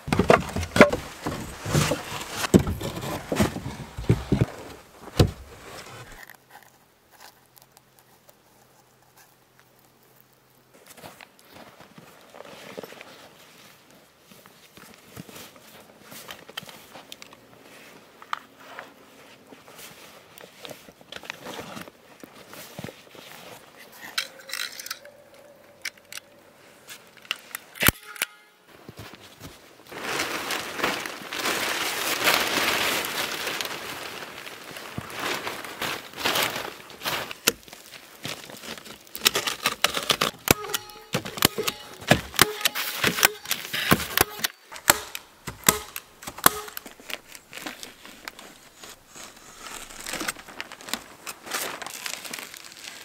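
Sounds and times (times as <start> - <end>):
fabric backpack rustling: 0.0 - 6.2
plastic sheeting rustling and crinkling: 0.0 - 6.3, 28.8 - 53.0.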